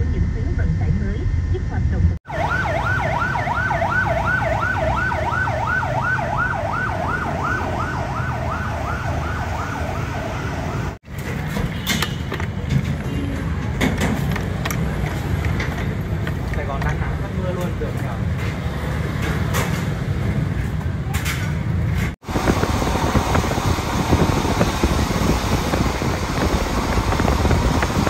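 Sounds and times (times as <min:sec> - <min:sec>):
traffic noise: 0:00.0 - 0:28.0
siren yelping: 0:02.2 - 0:11.0.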